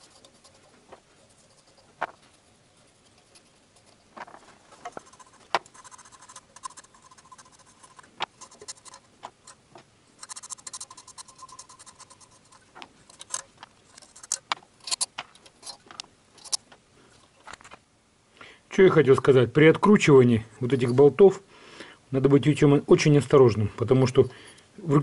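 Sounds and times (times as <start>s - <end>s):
light metallic clicks and scrapes: 0.0s - 17.8s.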